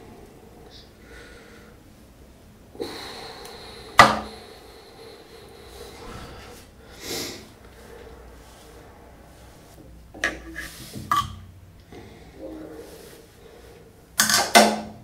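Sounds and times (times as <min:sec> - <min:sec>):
breath through the nose: 0:02.8 - 0:09.0.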